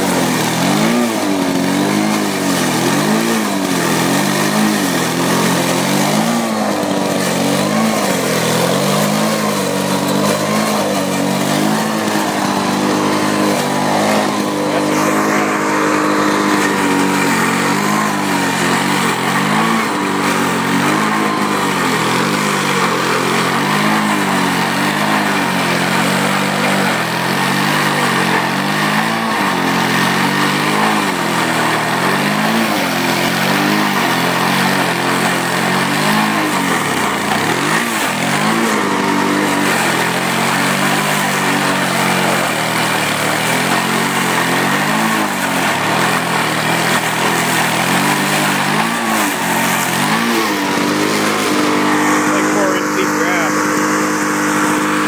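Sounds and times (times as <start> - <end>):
lawn mower engine cutting grass: 0.0 - 55.0.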